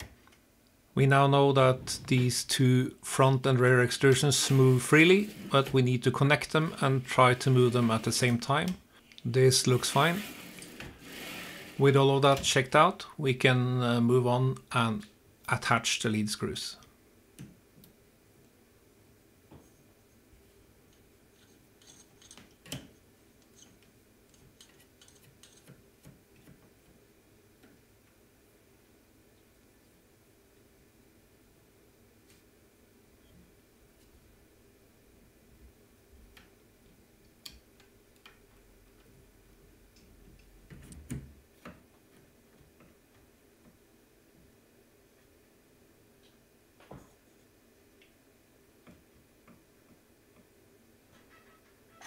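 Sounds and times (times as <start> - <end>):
light metal scrapes: 21.3 - 22.5.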